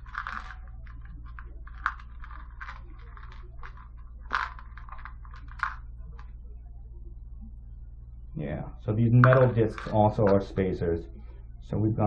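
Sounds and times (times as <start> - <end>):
plastic bag crinkling: 0.0 - 5.9.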